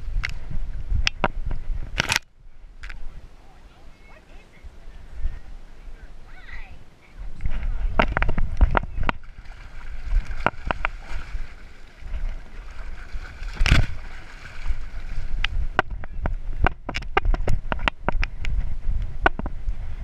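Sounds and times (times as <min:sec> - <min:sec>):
camera handling rumble and buffeting: 0:00.0 - 0:03.1, 0:07.3 - 0:09.2, 0:15.4 - 0:19.8
sharp clicks and knocks: 0:15.4 - 0:18.6.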